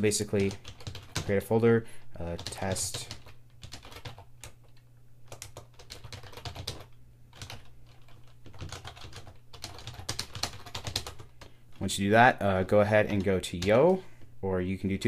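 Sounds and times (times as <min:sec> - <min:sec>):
keyboard typing: 0:00.2 - 0:01.4, 0:02.2 - 0:11.9.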